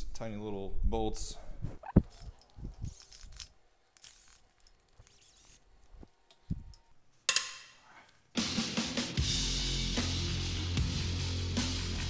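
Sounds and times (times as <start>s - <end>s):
hand tools clicking and scraping: 1.8s - 8.2s.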